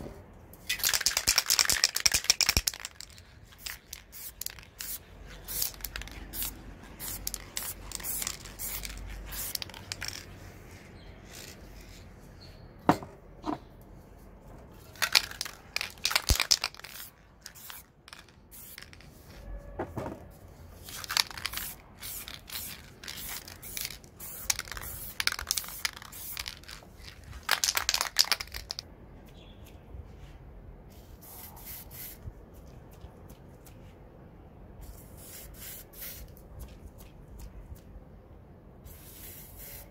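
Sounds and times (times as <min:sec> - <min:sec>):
spray paint can hissing: 0:00.6 - 0:12.0, 0:14.9 - 0:19.3, 0:20.8 - 0:28.8, 0:30.9 - 0:32.2, 0:34.8 - 0:37.5, 0:38.8 - 0:39.9.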